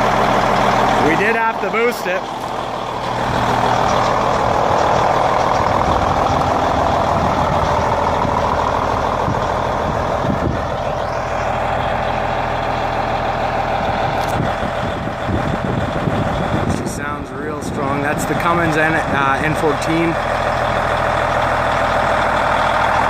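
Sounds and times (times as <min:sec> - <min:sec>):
diesel truck engine running: 0:00.0 - 0:23.0.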